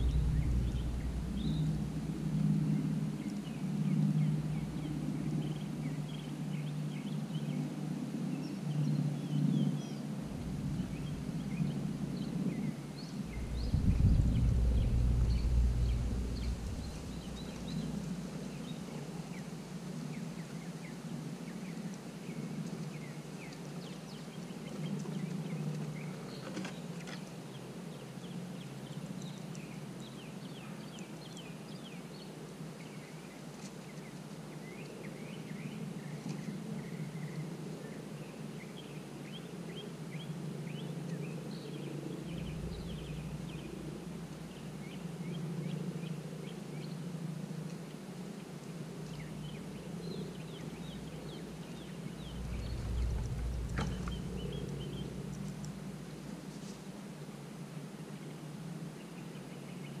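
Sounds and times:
steady low rumble: 0.0 - 6.0, 10.2 - 18.8, 42.2 - 45.0, 49.0 - 56.6
faint high ticks and chirps: 3.0 - 57.0.

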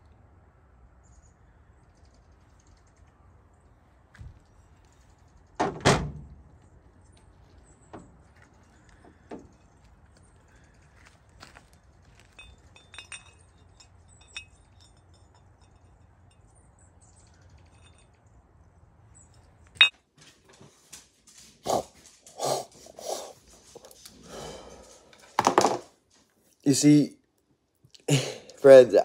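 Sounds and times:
steel axe heads clinking: 12.2 - 16.7, 17.4 - 18.2
dull knocks and handling: 25.3 - 25.9.

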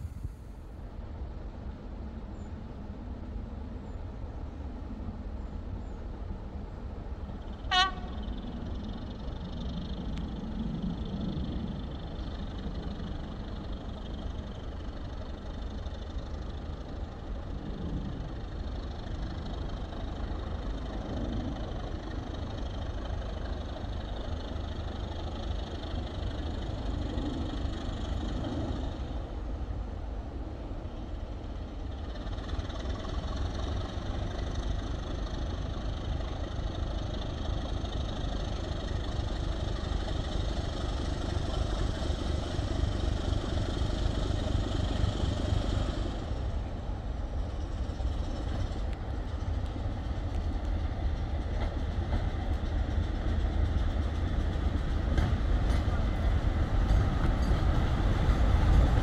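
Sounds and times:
diesel locomotive engine rumble: 0.0 - 59.0
short train horn toot: 7.7 - 8.3.

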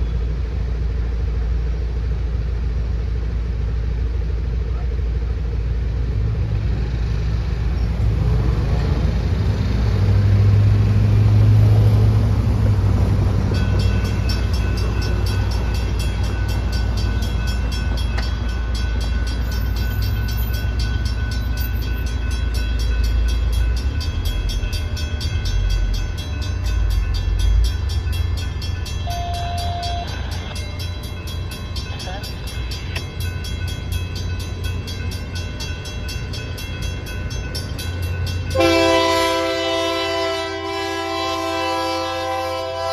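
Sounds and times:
road traffic rumbling: 0.0 - 42.9
railroad crossing bell ringing: 10.4 - 42.9.

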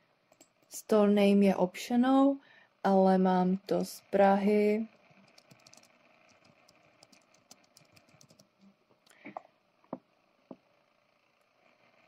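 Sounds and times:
keyboard key clicks: 5.3 - 8.4.

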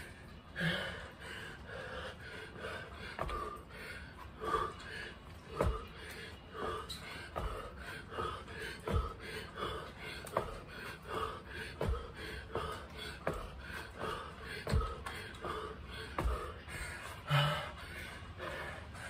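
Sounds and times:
man breathing hard: 0.0 - 19.0
feet thudding on landing: 2.6 - 3.8, 5.5 - 17.4.

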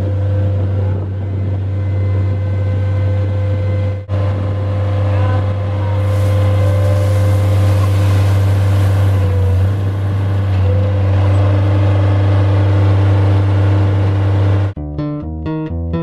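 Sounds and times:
high steady whine: 0.0 - 11.0
loader engine running under load: 0.0 - 14.8.

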